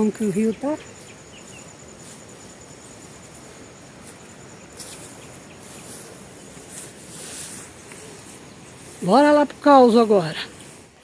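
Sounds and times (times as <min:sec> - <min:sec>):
insect trilling: 0:00.0 - 0:11.0
brushing rustles: 0:00.8 - 0:11.0.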